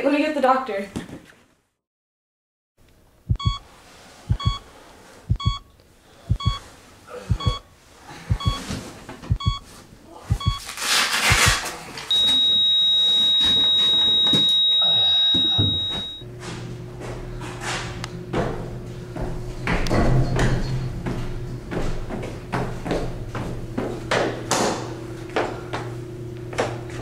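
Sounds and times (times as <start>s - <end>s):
heart monitor beeping: 3.3s - 3.6s, 4.3s - 4.7s, 5.3s - 5.7s, 6.3s - 6.7s, 7.3s - 7.7s, 8.3s - 8.7s, 9.3s - 9.7s, 10.3s - 10.7s, 11.3s - 16.2s
heartbeat thumps: 3.3s - 3.6s, 4.3s - 4.7s, 5.3s - 5.6s, 6.3s - 6.6s, 7.3s - 7.6s, 8.3s - 9.7s, 10.3s - 10.6s
monitor flatline tone: 3.3s - 3.6s, 4.3s - 4.7s, 5.3s - 5.6s, 6.3s - 6.6s, 7.3s - 7.6s, 8.3s - 8.6s, 9.3s - 9.6s, 10.3s - 10.6s, 12.1s - 16.2s.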